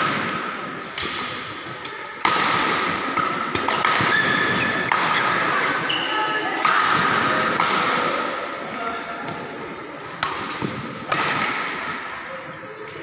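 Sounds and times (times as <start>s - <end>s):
racket hitting shuttlecock: 0.0s - 5.5s, 6.6s - 8.3s, 10.2s - 12.0s.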